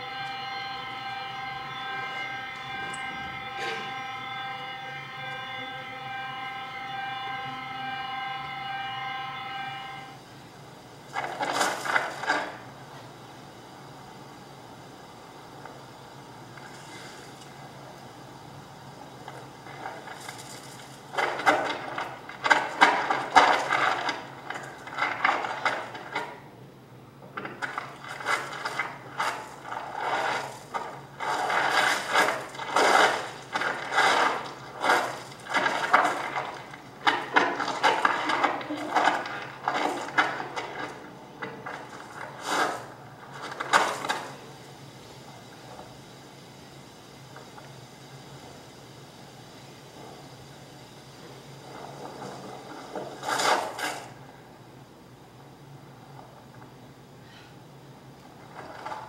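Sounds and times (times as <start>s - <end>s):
electroacoustic clicking and scraping: 0.0s - 4.6s, 11.0s - 13.1s, 16.5s - 18.1s, 19.0s - 26.5s, 27.2s - 46.0s, 51.2s - 54.3s, 58.1s - 59.0s.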